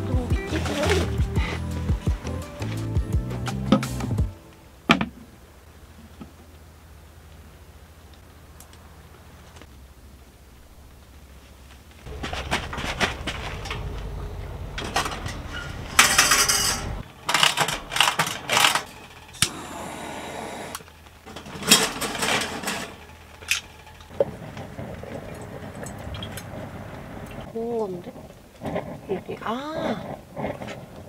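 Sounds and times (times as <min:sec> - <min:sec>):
metal and dishware clinking: 0:14.8 - 0:19.0.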